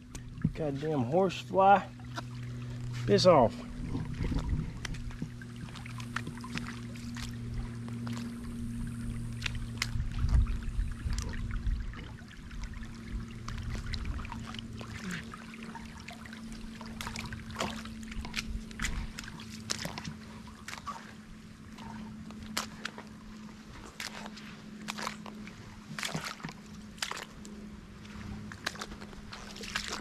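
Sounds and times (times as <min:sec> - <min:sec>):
steady low hum: 0:00.0 - 0:30.0
water trickling and lapping: 0:00.0 - 0:30.0
sharp ticks and drips: 0:04.0 - 0:20.8.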